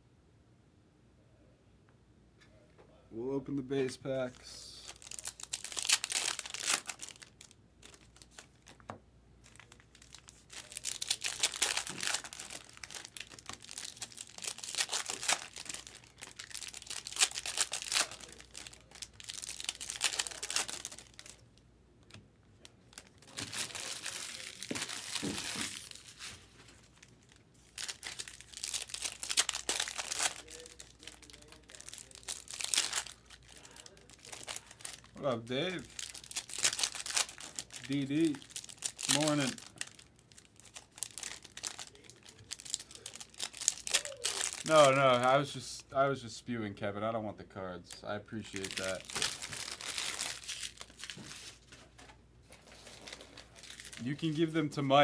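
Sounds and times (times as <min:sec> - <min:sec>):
foil wrappers tearing and crinkling: 0:04.8 - 0:08.8, 0:09.4 - 0:21.4, 0:22.9 - 0:45.3, 0:48.4 - 0:51.8, 0:52.5 - 0:54.5.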